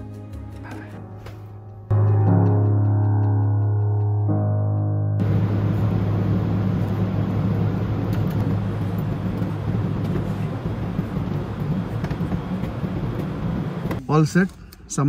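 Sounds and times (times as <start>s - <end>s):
low mechanical hum: 5.2s - 14.8s.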